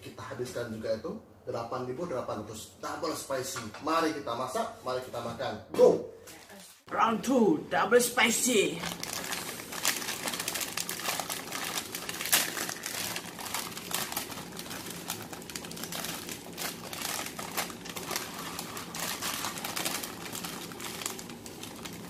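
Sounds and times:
plastic foil packet crinkling: 0:08.5 - 0:22.0.

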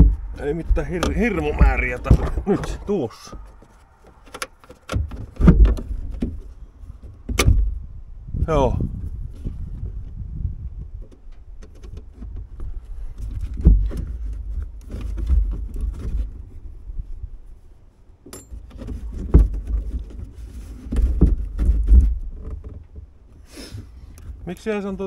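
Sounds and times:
low microphone rumble: 0:00.0 - 0:11.6
light metal clicks and knocks: 0:18.3 - 0:19.4.

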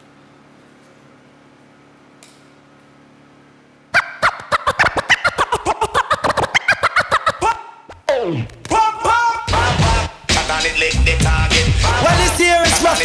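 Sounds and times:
vinyl record scratching: 0:04.0 - 0:13.0.

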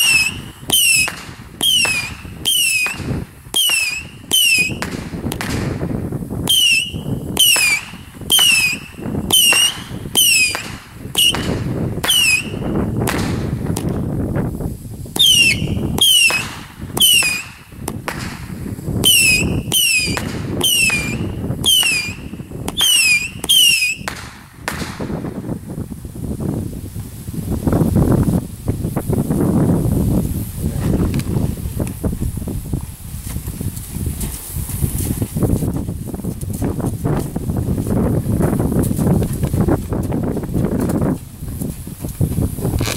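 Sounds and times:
firecrackers popping with whistle: 0:00.0 - 0:14.4, 0:15.0 - 0:25.6.

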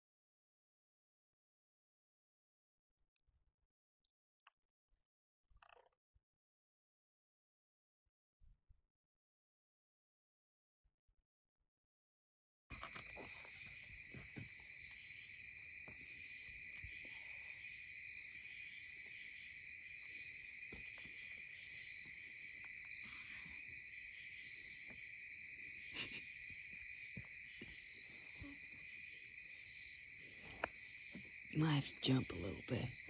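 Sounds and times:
crickets trilling: 0:12.7 - 0:33.0
high insect buzz: 0:12.8 - 0:31.5.

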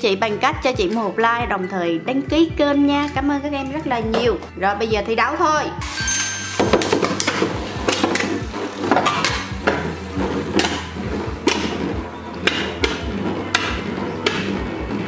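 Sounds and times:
spinning tops clashing: 0:05.8 - 0:08.3.

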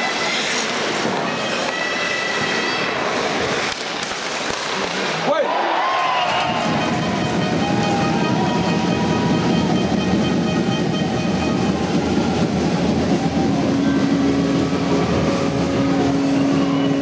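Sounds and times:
crowd cheering and clapping: 0:04.8 - 0:17.0
steady held tone: 0:06.4 - 0:17.0.

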